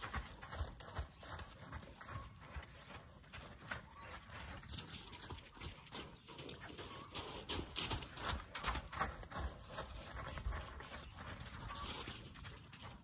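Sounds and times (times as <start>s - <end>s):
hoofbeats on dirt: 0.0s - 13.0s.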